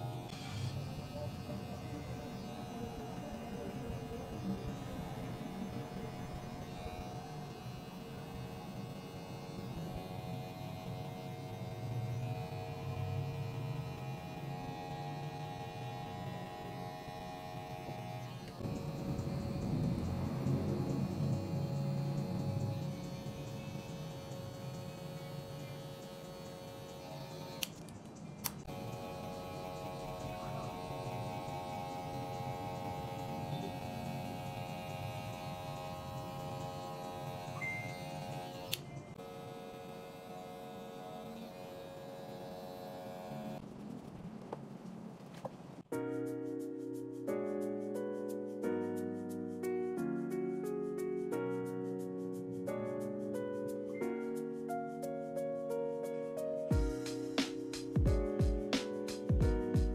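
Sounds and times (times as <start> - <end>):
electric hair clipper buzzing: 0.0 - 27.8, 28.4 - 43.6.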